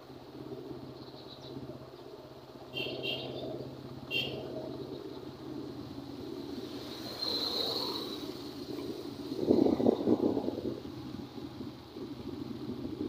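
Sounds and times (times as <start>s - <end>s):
road and wind rumble: 0.0s - 13.0s
small vehicle engine running: 2.2s - 13.0s
motorcycle passing close: 2.7s - 11.3s.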